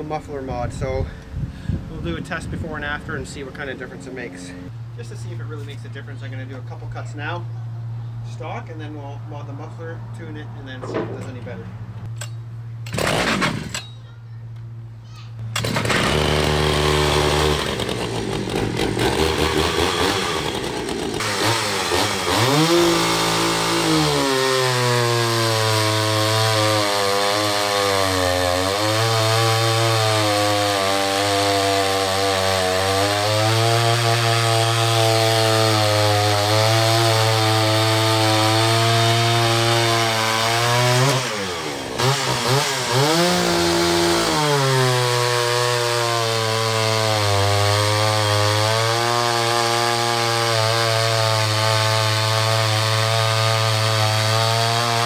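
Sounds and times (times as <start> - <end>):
chainsaw cutting through log: 12.9 - 13.8, 15.6 - 55.0.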